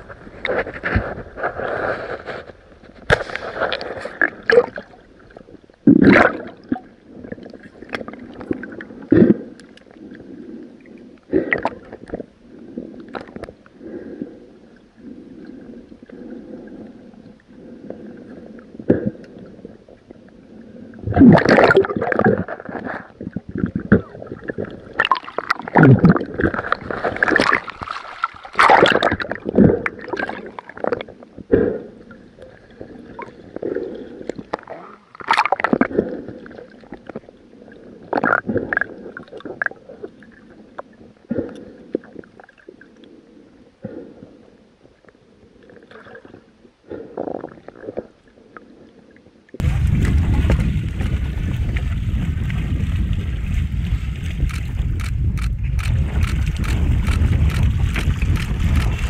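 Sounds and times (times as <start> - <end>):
underwater gurgling and bubbling: 3.2 - 44.6, 45.2 - 59.0
loud splashes: 49.6 - 54.4.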